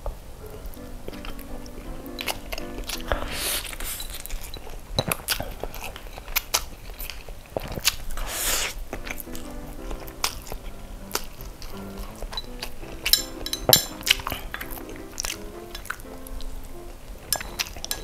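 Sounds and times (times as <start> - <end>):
wet chewing smacks: 2.2 - 13.1
person slurping noodles: 8.2 - 8.8.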